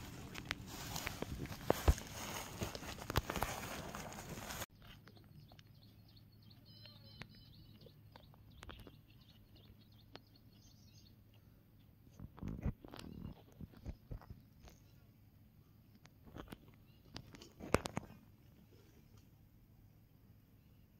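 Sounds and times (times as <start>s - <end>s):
hands rustling plastic sack: 0.0s - 4.7s
faint bird chirps: 4.7s - 12.2s, 12.8s - 16.0s.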